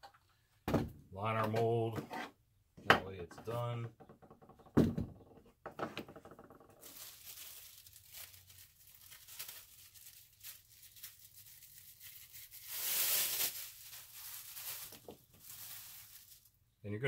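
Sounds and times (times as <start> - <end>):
plastic liner crinkling: 6.2 - 16.6.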